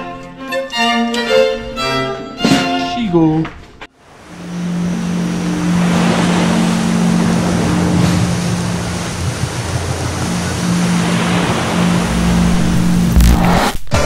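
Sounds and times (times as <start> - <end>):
low steady hum: 4.0 - 13.5
ocean surf washing in: 4.0 - 13.7.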